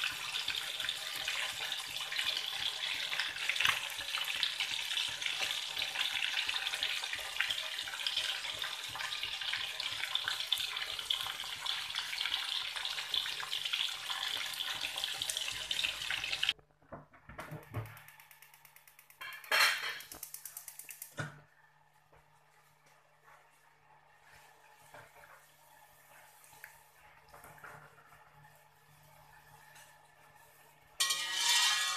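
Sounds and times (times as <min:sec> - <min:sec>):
fish frying in hot oil: 0:00.0 - 0:16.6.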